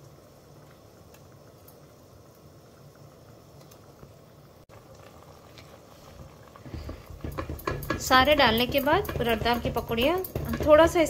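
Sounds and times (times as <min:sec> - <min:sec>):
pot boiling with bubbling: 0:00.0 - 0:11.0.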